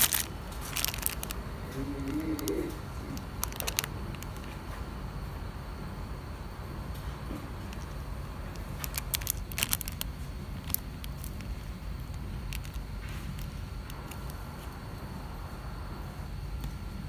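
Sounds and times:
plastic wrapper crinkling: 0.0 - 4.6, 7.6 - 14.7
steady low hum: 0.0 - 17.0.

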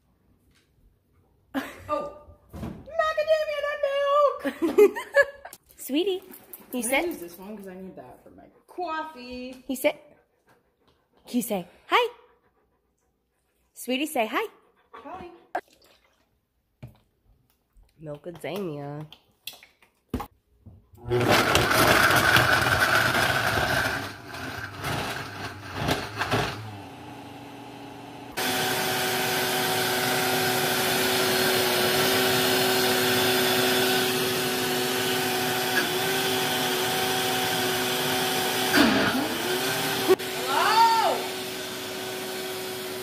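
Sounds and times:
blender motor running: 21.0 - 43.0.

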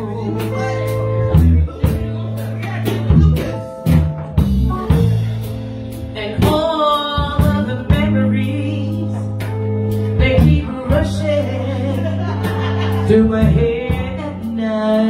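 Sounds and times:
held bass notes: 0.0 - 15.0
keyboard chords: 0.0 - 15.0
drum kit hits: 0.3 - 8.2
woman singing: 6.1 - 15.0.

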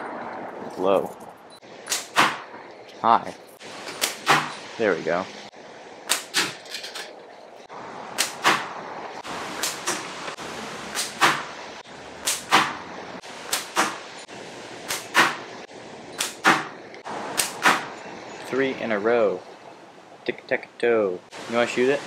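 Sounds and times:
slingshot bands snapping: 13.5 - 14.0, 14.9 - 15.4, 17.4 - 17.9.

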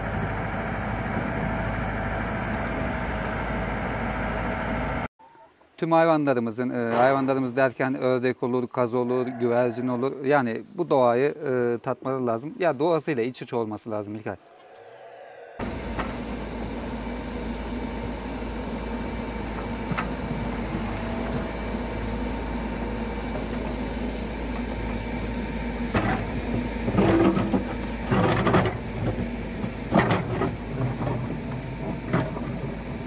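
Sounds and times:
diesel engine running: 0.0 - 5.1, 15.6 - 33.0.

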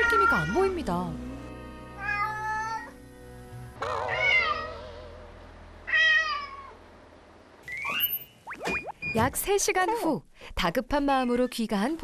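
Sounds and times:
cat meowing loudly: 0.0 - 0.7, 2.0 - 2.9, 3.8 - 5.0, 5.9 - 6.8
background music: 0.0 - 5.8.

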